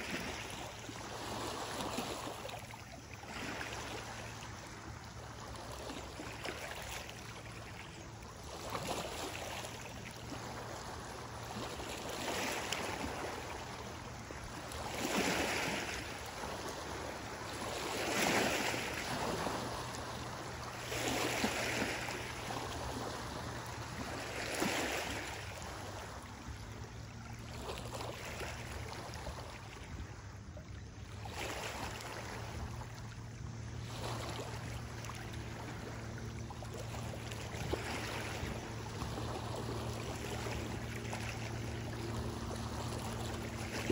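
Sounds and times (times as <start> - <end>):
waves washing over gravel: 0.0 - 0.5.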